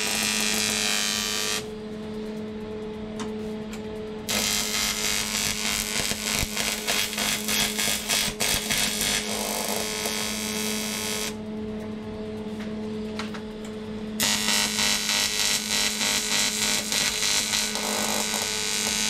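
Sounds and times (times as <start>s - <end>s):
welding arc crackly hiss: 0.0s - 1.7s, 4.3s - 11.4s, 14.2s - 19.0s.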